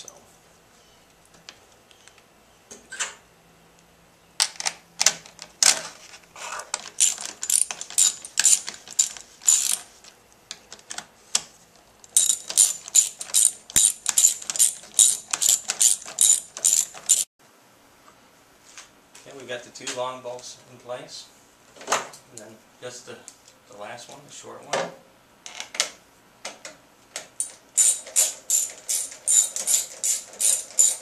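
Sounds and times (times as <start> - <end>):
socket ratchet clicking: 6.8 - 9.9, 12.1 - 17.2, 27.4 - 31.0.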